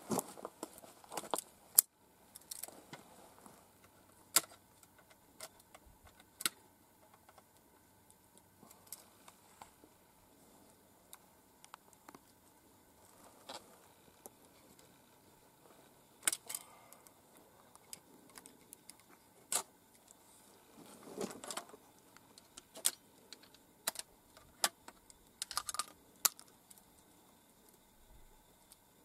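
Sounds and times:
shotgun shells clicking and rattling: 0:22.4 - 0:26.6.

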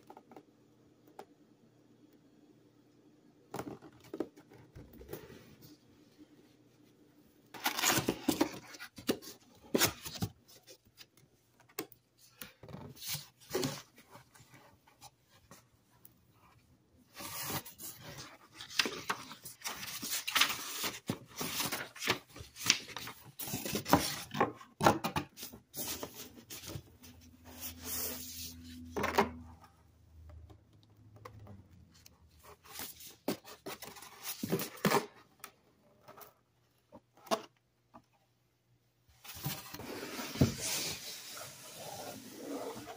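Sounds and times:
cardboard and paper rustling: 0:07.5 - 0:15.7, 0:16.4 - 0:29.4, 0:31.3 - 0:35.3, 0:39.2 - 0:42.9.

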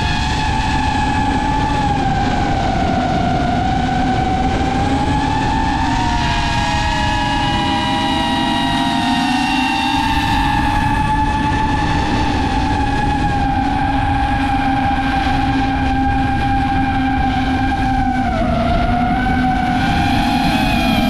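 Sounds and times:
drone motors whining: 0:00.0 - 0:21.0
low rushing noise: 0:00.9 - 0:21.0.

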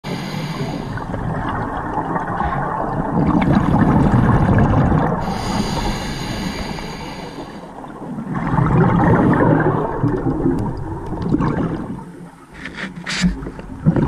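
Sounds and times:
regulator breathing underwater: 0:00.0 - 0:01.2, 0:05.2 - 0:07.8
gurgling exhaled bubbles: 0:00.1 - 0:12.2.

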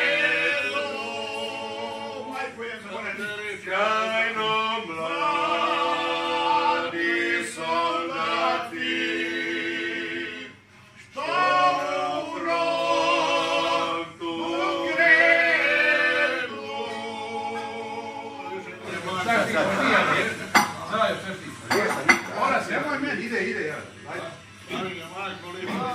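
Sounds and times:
men singing a cappella: 0:00.0 - 0:20.6.

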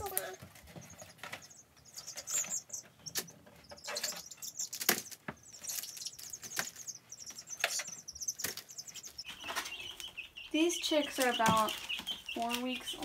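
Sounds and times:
chicks peeping: 0:00.0 - 0:13.0
wings flapping: 0:10.8 - 0:13.0.

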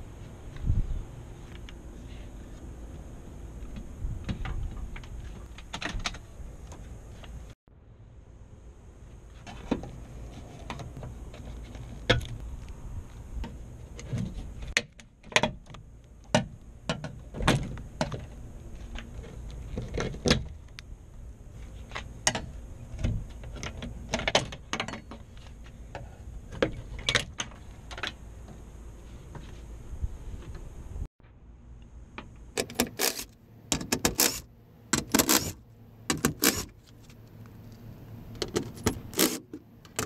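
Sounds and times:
tool clicking on car door: 0:32.6 - 0:34.4, 0:35.0 - 0:36.7.

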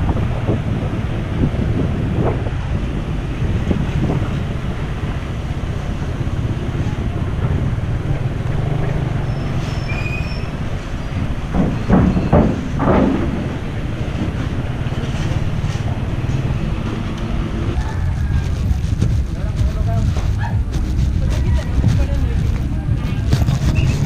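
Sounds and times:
road noise on rough concrete: 0:00.0 - 0:24.0
wind noise: 0:00.0 - 0:24.0
motorcycle engine running: 0:14.8 - 0:24.0.

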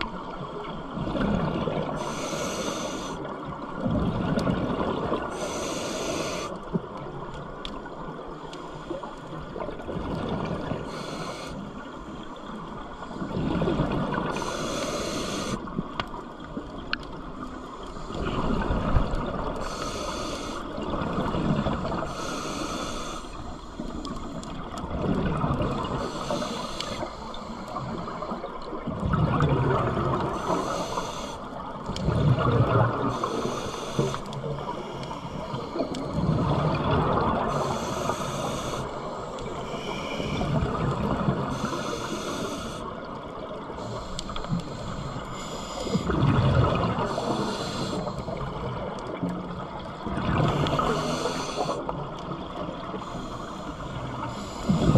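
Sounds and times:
diver breathing through regulator: 0:01.9 - 0:03.3, 0:05.3 - 0:06.6, 0:10.8 - 0:11.8, 0:13.2 - 0:15.7, 0:19.6 - 0:20.7, 0:22.0 - 0:24.3, 0:25.8 - 0:28.4, 0:30.1 - 0:31.5, 0:33.0 - 0:36.6, 0:37.3 - 0:48.8, 0:50.4 - 0:51.9, 0:52.9 - 0:54.9
bubbling exhale: 0:53.0 - 0:54.9.

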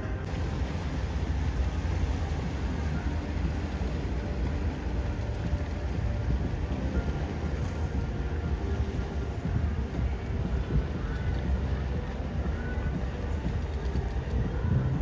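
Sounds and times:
steady low rumble: 0:00.0 - 0:15.0
even hiss: 0:00.2 - 0:14.3.

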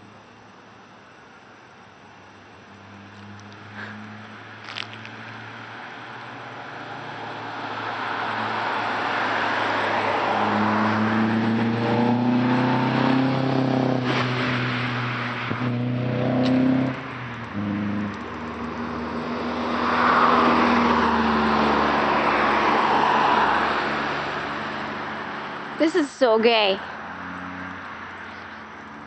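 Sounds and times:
car engine accelerating hard: 0:02.8 - 0:25.9.

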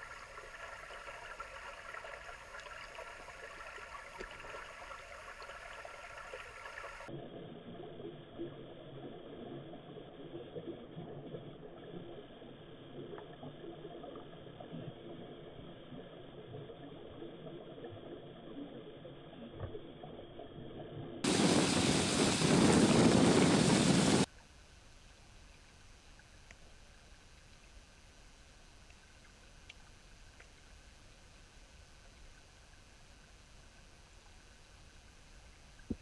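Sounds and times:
muffled underwater rush: 0:21.2 - 0:24.3
quiet steady hiss: 0:24.1 - 0:36.0
faint ticks: 0:25.5 - 0:27.8, 0:28.8 - 0:30.8.

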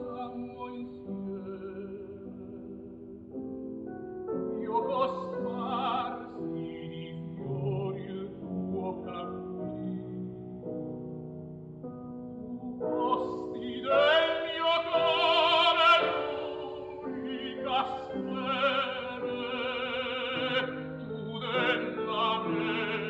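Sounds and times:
opera singer with vibrato: 0:00.0 - 0:02.5, 0:04.5 - 0:09.9, 0:12.6 - 0:23.0.

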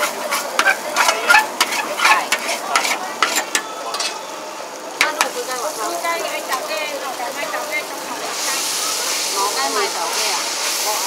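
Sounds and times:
metal turner scraping a wok: 0:00.0 - 0:04.2
noodles sizzling: 0:00.0 - 0:11.0.

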